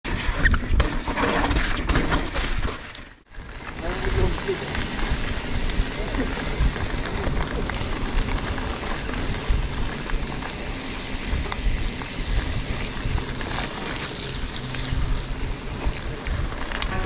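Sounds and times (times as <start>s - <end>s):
bike tyres rolling on rough track: 0.0s - 17.0s
bike clicks: 3.4s - 17.0s
wind buffeting microphone: 3.7s - 17.0s.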